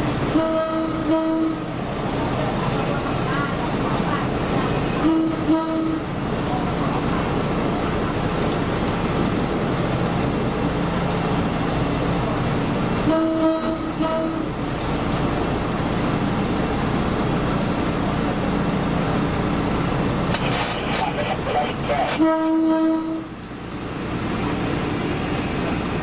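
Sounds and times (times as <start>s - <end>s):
diesel train rumbling on track: 0.0s - 26.0s
train horn blasts: 0.3s - 1.7s, 5.0s - 6.1s, 13.0s - 14.5s, 22.2s - 23.3s.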